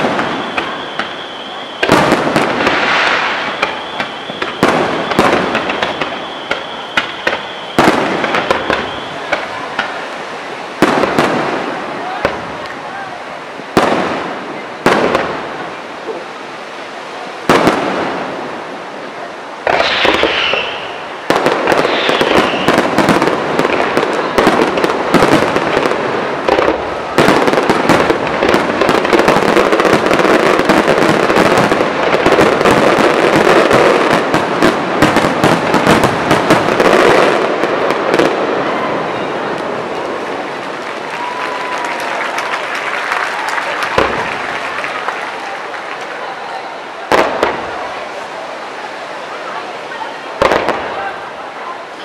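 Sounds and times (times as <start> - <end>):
falling firework whistle: 0.0 - 10.0, 19.6 - 25.8, 41.0 - 45.6
firework bursts and crackling: 0.0 - 16.2, 17.4 - 52.0.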